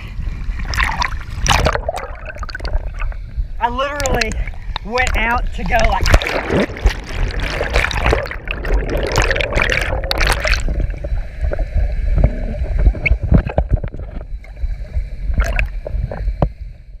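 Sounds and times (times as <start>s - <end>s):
rush of air bubbles underwater: 0.0s - 16.6s
underwater rumble and gurgling: 0.0s - 17.0s
underwater knocks: 4.0s - 14.3s.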